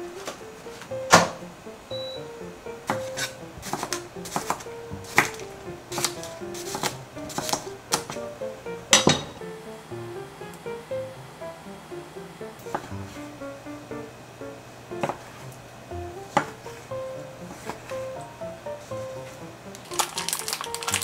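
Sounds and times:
light background music: 0.0s - 21.0s
utensils and dishes clinking: 8.9s - 9.4s.

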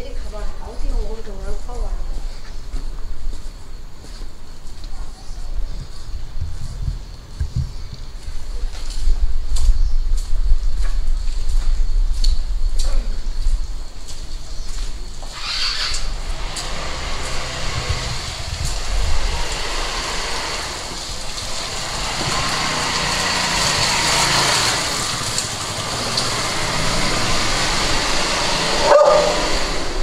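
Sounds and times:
motor scooter passing: 15.0s - 30.0s.

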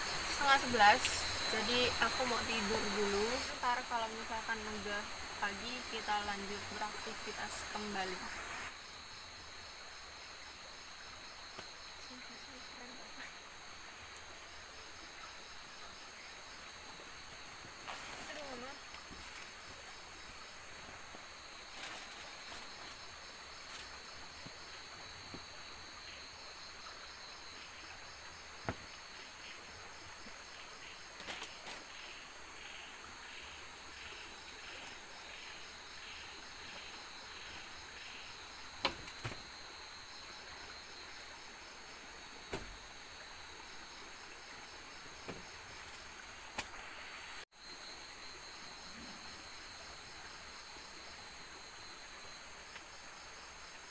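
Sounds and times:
insects trilling: 0.0s - 53.9s.

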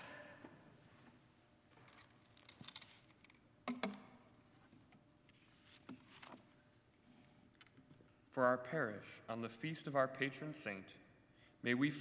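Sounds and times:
pages rustling: 1.8s - 3.3s.

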